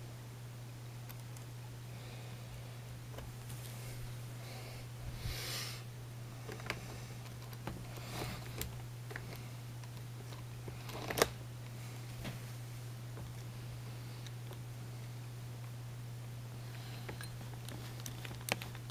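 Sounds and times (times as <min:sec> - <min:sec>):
low electrical hum: 0:00.0 - 0:18.9
handling rustle: 0:03.0 - 0:04.2.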